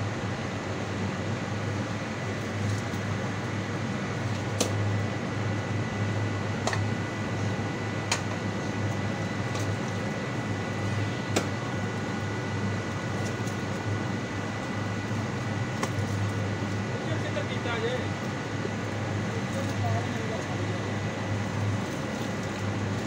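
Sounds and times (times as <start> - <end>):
mechanical hum with low drone: 0.0 - 23.0
sharp knocks of blade: 11.3 - 11.6.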